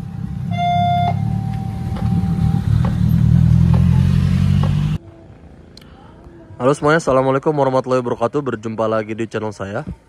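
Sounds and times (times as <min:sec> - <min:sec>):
minivan engine passing: 0:00.0 - 0:05.6
short high beep: 0:00.5 - 0:02.6.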